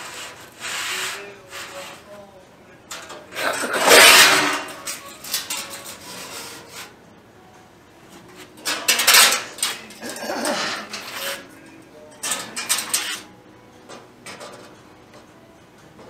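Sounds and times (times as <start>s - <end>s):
sheet metal scraping and clattering: 0.0s - 2.1s, 2.9s - 7.0s, 8.3s - 13.3s, 13.9s - 14.9s.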